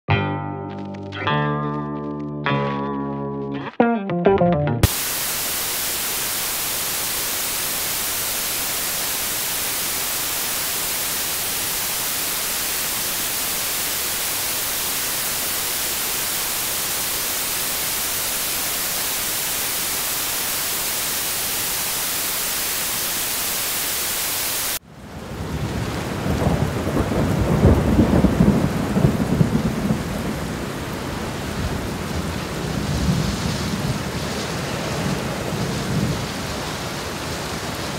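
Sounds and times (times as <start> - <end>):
steady white noise hiss: 4.8 - 24.8
rain: 4.8 - 37.9
rumbling thunder: 25.2 - 30.8, 31.6 - 36.4.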